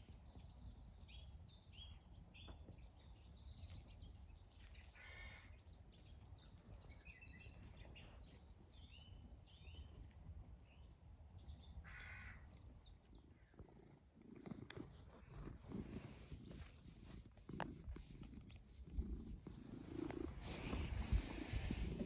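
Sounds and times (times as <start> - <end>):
small birds chirping: 0.0 - 22.0
crow cawing: 5.0 - 5.5, 11.8 - 12.4
wind rumble on microphone: 6.2 - 22.0
close rustling: 14.2 - 22.0.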